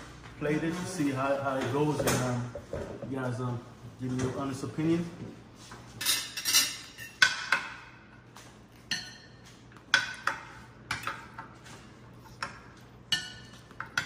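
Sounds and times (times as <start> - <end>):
cutlery clinking on plates: 6.0 - 7.8, 8.8 - 11.6.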